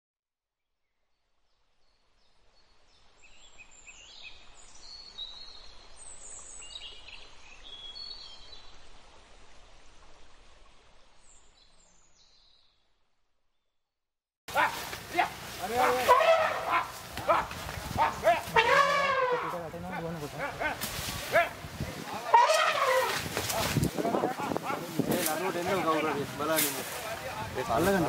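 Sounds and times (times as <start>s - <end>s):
outdoor background hiss: 0.9s - 12.8s, 14.5s - 28.0s
birds chirping: 14.5s - 28.0s.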